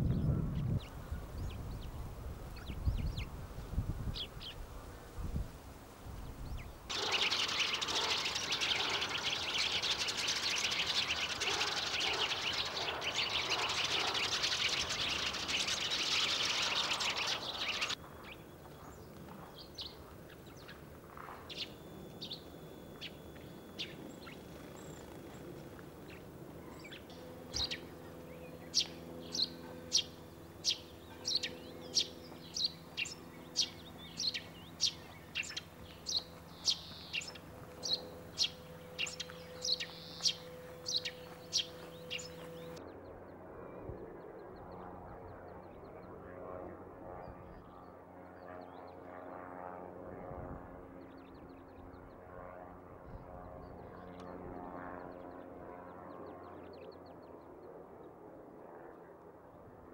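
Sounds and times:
sparrows chirping: 0.0s - 5.6s, 6.2s - 43.0s.

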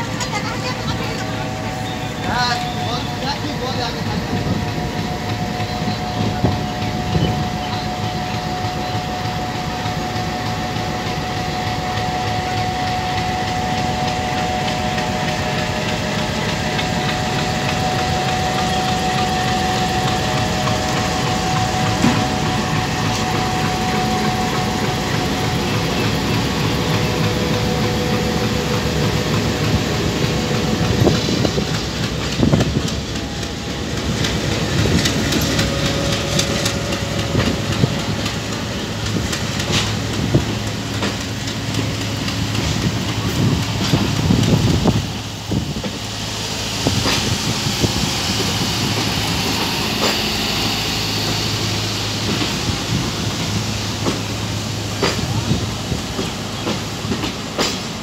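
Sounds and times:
diesel locomotive engine drone: 0.0s - 58.0s
train wheels knocking over rails: 46.8s - 58.0s.

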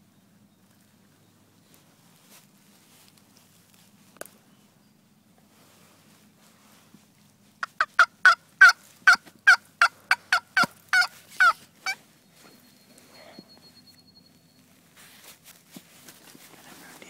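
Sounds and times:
turkey yelps: 7.6s - 12.0s.

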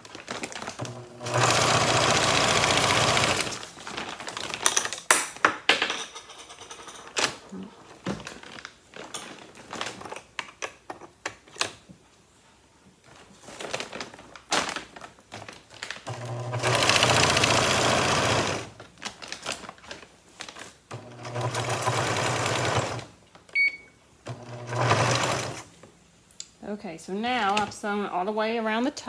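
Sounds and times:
sewing machine stitching: 0.8s - 3.6s, 16.1s - 18.7s, 20.9s - 23.1s, 24.3s - 25.7s.

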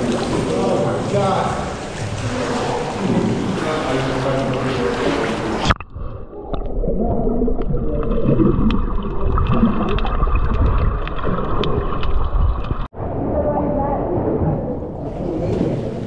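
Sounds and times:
muffled underwater churning: 0.0s - 16.0s
sharp underwater clicks: 8.6s - 12.9s.

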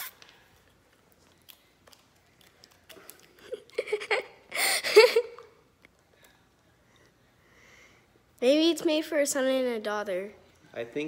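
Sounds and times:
girl giggling: 3.3s - 5.6s.

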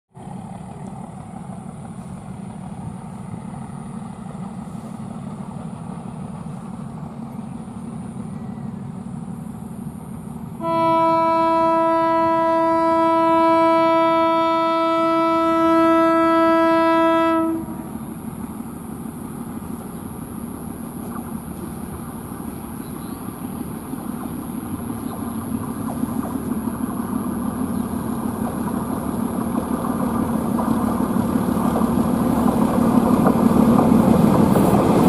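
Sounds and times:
train horn blast: 10.6s - 18.1s.

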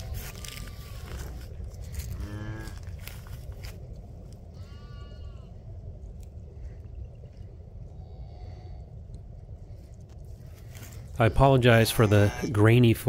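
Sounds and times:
cattle mooing: 0.0s - 3.1s, 4.6s - 5.5s, 11.7s - 12.7s
steady low rumble: 0.0s - 13.0s.

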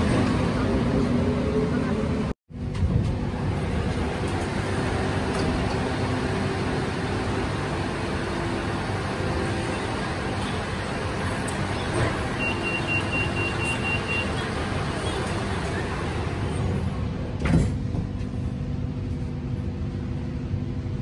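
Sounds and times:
train running gear hum: 0.0s - 21.0s
high door warning beeps: 12.2s - 14.5s.

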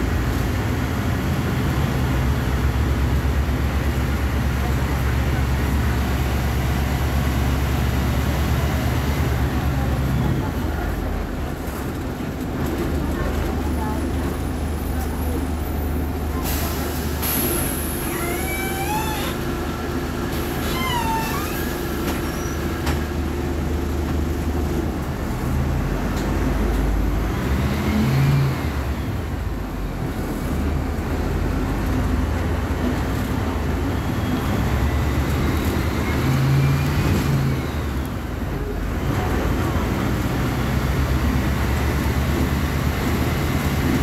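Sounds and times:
bus engine droning: 0.0s - 44.0s
short high squeaks: 18.0s - 19.4s, 20.5s - 22.6s.

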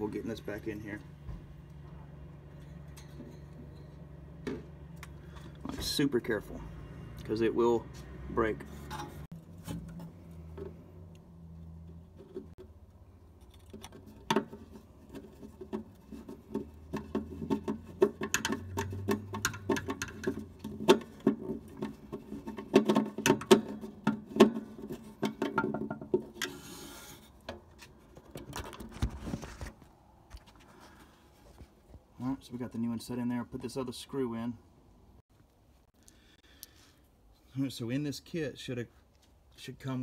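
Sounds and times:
nut driver clicking and scraping: 13.4s - 27.6s.

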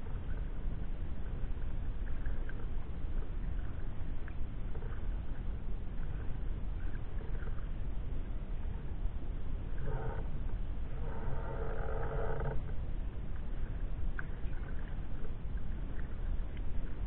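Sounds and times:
wind rumble on microphone: 0.0s - 17.0s
paddle splashes in water: 13.3s - 17.0s.

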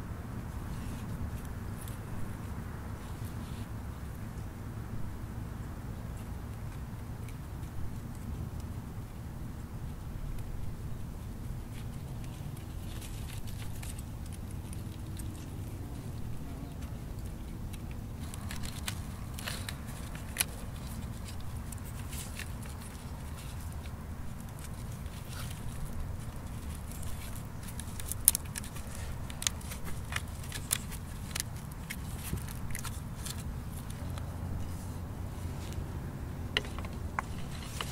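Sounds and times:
steady low rumble: 0.0s - 37.9s
cord crackling and clicking: 11.3s - 37.9s.

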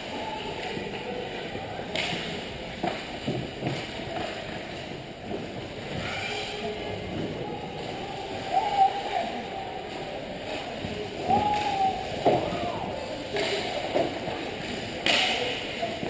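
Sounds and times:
hockey sticks knocking: 1.9s - 6.1s, 13.3s - 16.0s.

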